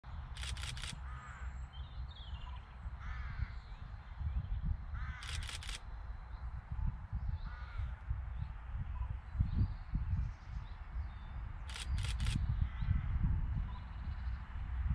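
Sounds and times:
sharp clicks: 0:00.4 - 0:01.0, 0:05.2 - 0:05.9, 0:11.7 - 0:12.4
crow cawing: 0:01.0 - 0:01.6, 0:03.0 - 0:03.6, 0:04.9 - 0:05.6, 0:07.4 - 0:08.0.

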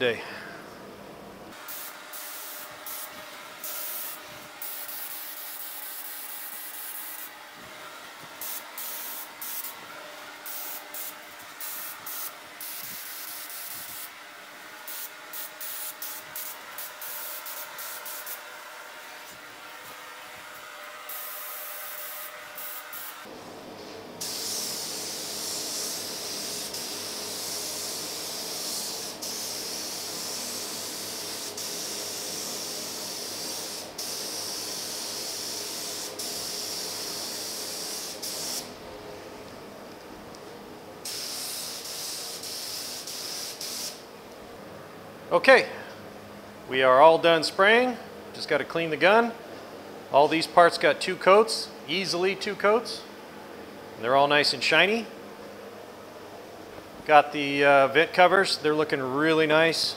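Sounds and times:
exhaust fan hum: 0:00.0 - 0:59.9
spray gun hissing: 0:01.5 - 0:07.3, 0:08.4 - 0:09.8, 0:10.4 - 0:14.1, 0:14.8 - 0:18.4, 0:21.1 - 0:23.3, 0:24.2 - 0:38.8, 0:41.0 - 0:44.1.

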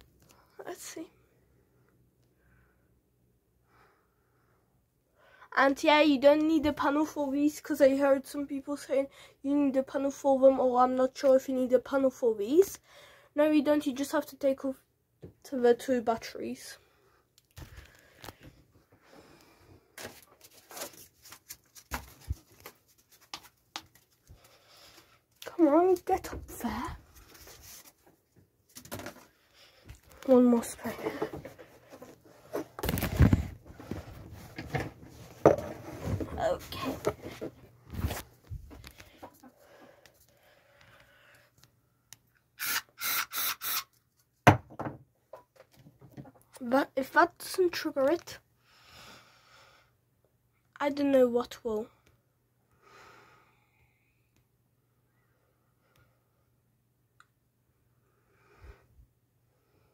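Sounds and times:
soft handling knocks and rustles: 0:30.8 - 0:39.4.

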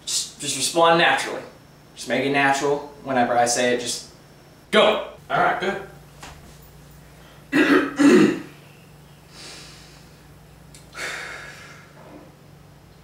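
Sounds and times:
man clearing his throat: 0:07.5 - 0:08.6
breathy exhale: 0:09.3 - 0:10.2, 0:10.9 - 0:12.2.

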